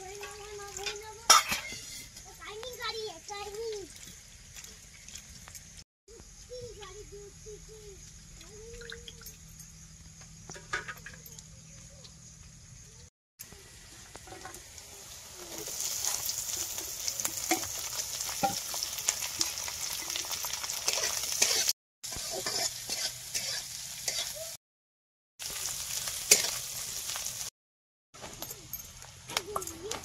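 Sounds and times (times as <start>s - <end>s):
spatula scraping a wok: 1.3s - 2.2s, 15.4s - 24.6s, 25.6s - 26.7s
fish sizzling in oil: 13.5s - 24.6s, 25.4s - 27.5s.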